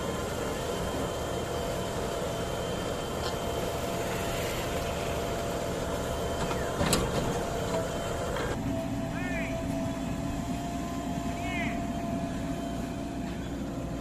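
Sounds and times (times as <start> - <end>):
diesel engine running: 0.0 - 14.0.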